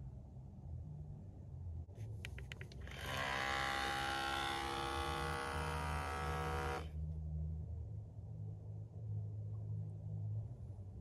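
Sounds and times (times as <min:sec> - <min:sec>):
small electric pump running: 0:02.8 - 0:06.9.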